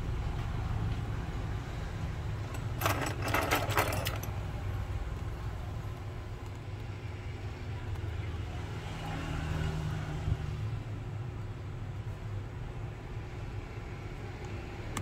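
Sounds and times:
sharp clicks and rattles: 0:02.4 - 0:04.5.

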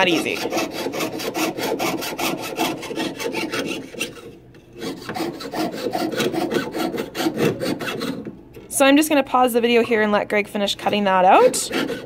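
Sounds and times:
hand saw rasping through metal: 0:00.0 - 0:08.3, 0:10.8 - 0:12.0.

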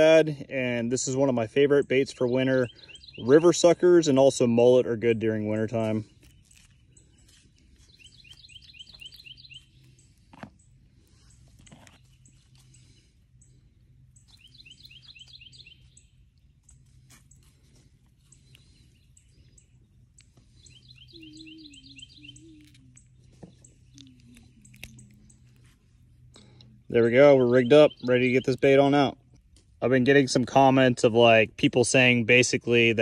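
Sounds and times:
steady low hum: 0:00.0 - 0:33.0
faint bird chirps: 0:02.0 - 0:04.2, 0:05.9 - 0:29.0.

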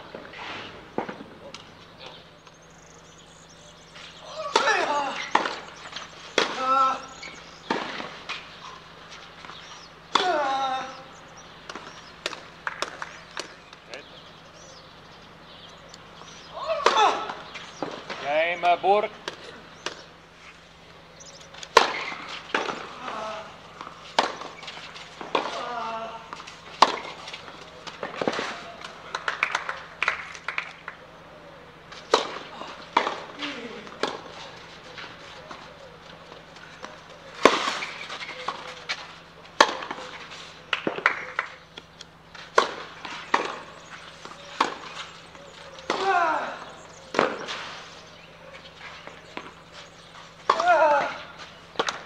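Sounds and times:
tennis ball struck by rackets: 0:04.2 - 0:10.5, 0:11.6 - 0:13.9, 0:16.4 - 0:20.2, 0:21.6 - 0:30.8, 0:31.9 - 0:52.0
player crying out: 0:46.0 - 0:46.7, 0:50.6 - 0:51.3.

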